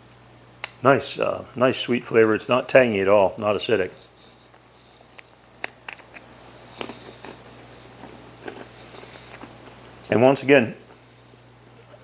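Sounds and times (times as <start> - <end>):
person chewing crunchy cracker: 4.1 - 9.8.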